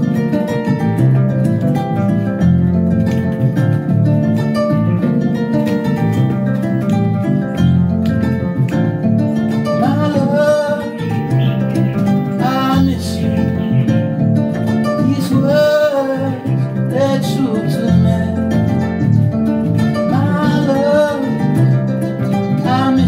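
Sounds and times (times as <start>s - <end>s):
electric bass notes: 0.0s - 23.0s
kora plucking a melody: 0.0s - 23.0s
man singing wavering phrases: 9.8s - 14.0s, 15.0s - 18.6s, 20.0s - 21.6s, 22.5s - 23.0s.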